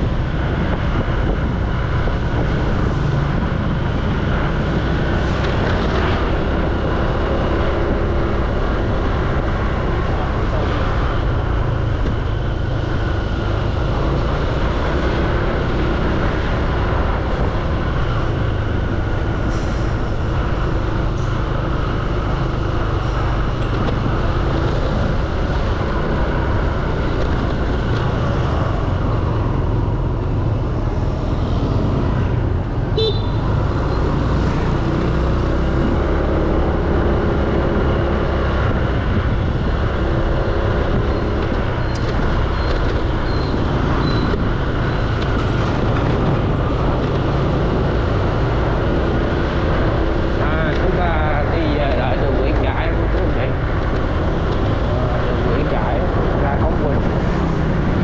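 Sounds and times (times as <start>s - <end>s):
traffic: 0.0s - 58.0s
motor scooter engine rumble: 19.9s - 36.0s.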